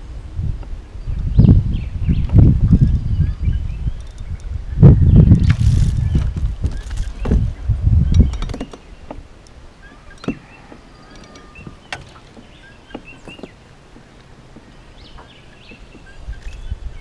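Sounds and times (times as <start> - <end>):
wind rumble on microphone: 0.0 - 17.0
clicks and knocks from gear: 5.4 - 9.2.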